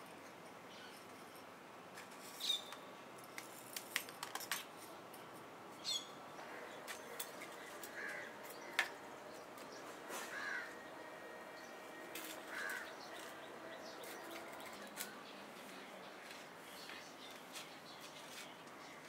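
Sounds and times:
bird chirps: 2.4s - 2.8s, 5.8s - 6.2s
hand trowel scraping gravel: 9.8s - 10.5s.

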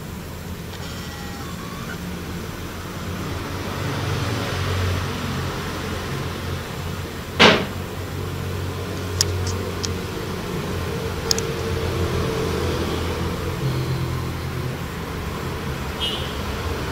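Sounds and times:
low mechanical hum: 0.0s - 4.0s.

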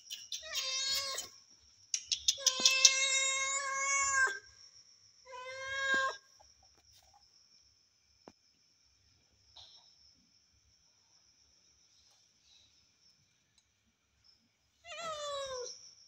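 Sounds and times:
sharp clicks: 1.9s - 3.0s.

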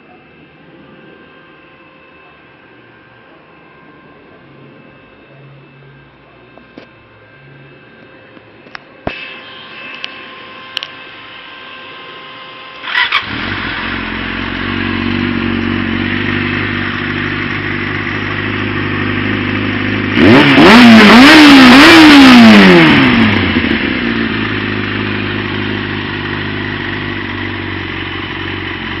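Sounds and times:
motorcycle engine revving: 12.1s - 29.0s
motorcycle engine starting and idling: 12.4s - 29.0s.

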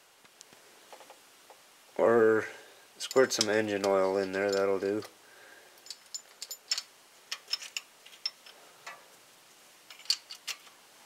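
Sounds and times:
small metal parts clinking: 3.0s - 5.1s, 5.8s - 9.0s, 9.9s - 10.8s.

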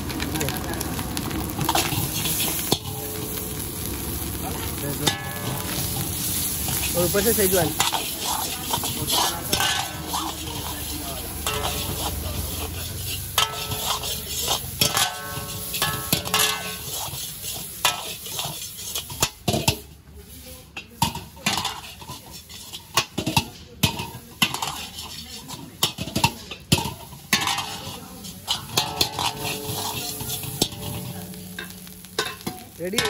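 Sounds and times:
food sizzling: 0.0s - 33.0s
ladle clanging against wok: 1.6s - 3.6s, 4.5s - 20.0s, 20.7s - 33.0s.

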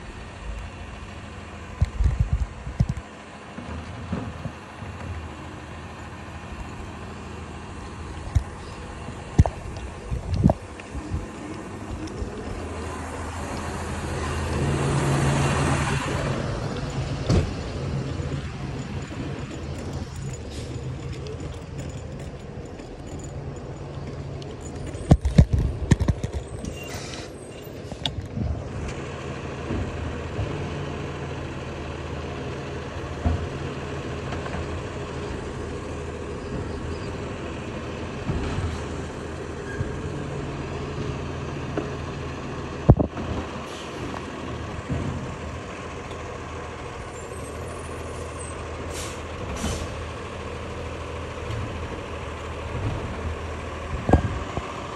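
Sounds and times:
garbage truck engine droning: 0.0s - 54.9s
sharp knocks and rattles: 15.9s - 26.8s.

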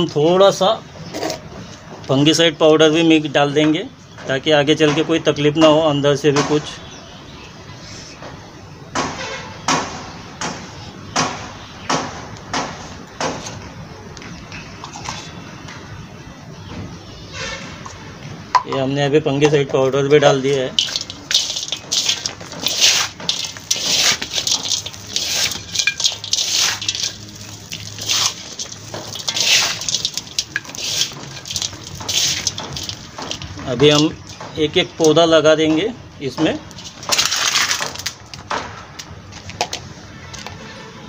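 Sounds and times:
hand scraping soil in metal basin: 20.5s - 34.2s.

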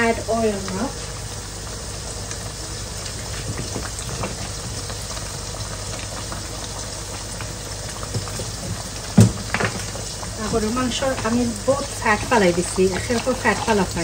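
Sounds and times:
stew bubbling and sizzling: 0.0s - 14.0s.

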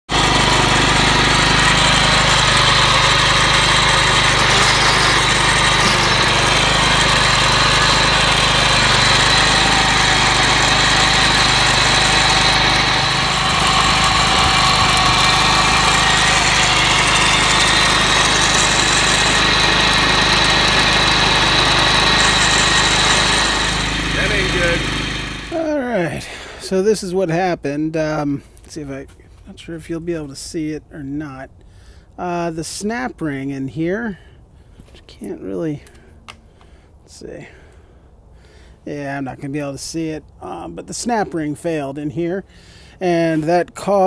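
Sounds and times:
lawn mower engine running: 0.1s - 26.6s.

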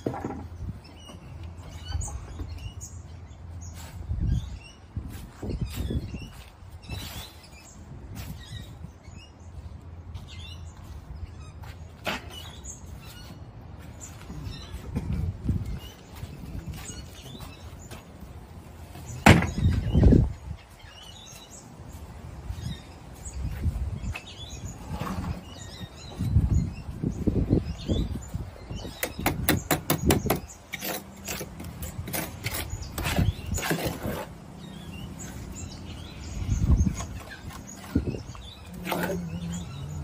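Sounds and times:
knocks and scrapes: 0.0s - 2.7s, 11.6s - 20.4s, 28.8s - 35.6s
loud clunks: 19.2s - 19.9s.

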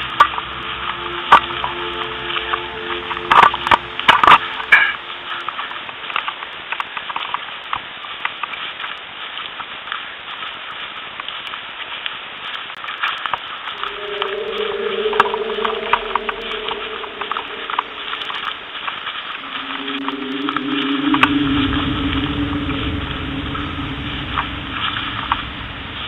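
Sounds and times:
steady droning tone: 0.0s - 7.4s, 13.7s - 26.0s.

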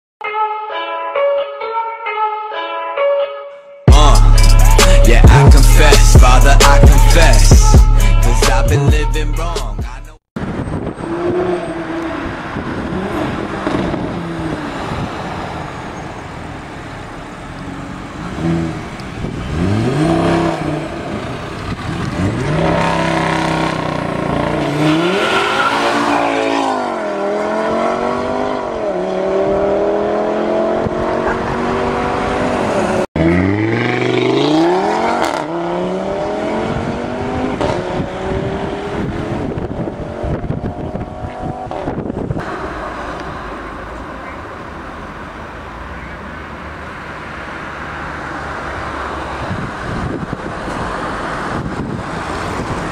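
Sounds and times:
car accelerating away: 11.0s - 45.4s
car engine revving: 16.7s - 44.2s.

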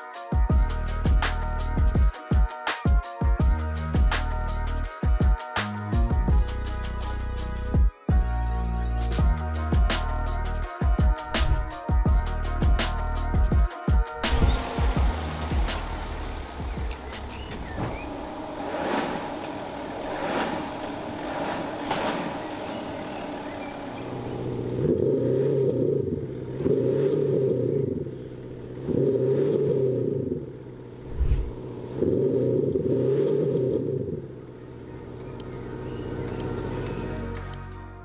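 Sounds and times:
diesel engine revving: 14.2s - 37.4s
short low thump: 31.1s - 31.6s.

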